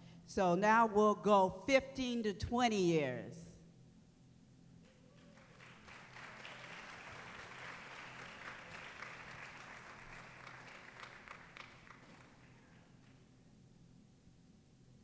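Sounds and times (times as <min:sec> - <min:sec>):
audience applauding: 0:05.1 - 0:13.2.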